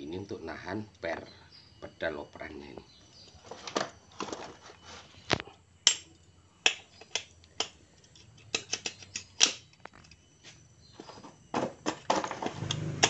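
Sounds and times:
metallic clicks and taps: 5.9 - 10.2.

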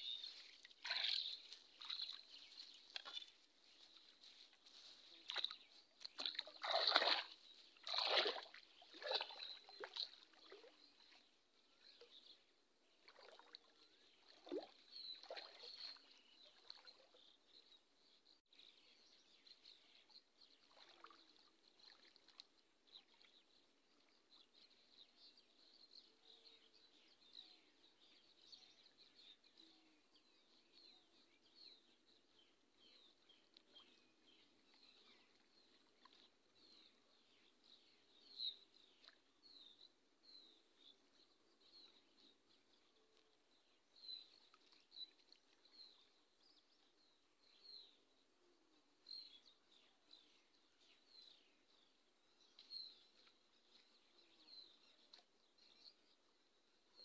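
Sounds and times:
water splashing and sloshing: 0.0 - 12.0, 13.0 - 17.4, 20.5 - 23.3.

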